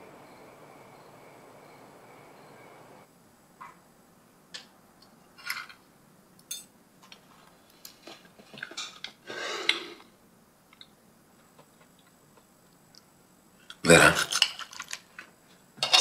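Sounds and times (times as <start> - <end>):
cutlery clinking and scraping on plate: 15.8 - 16.0.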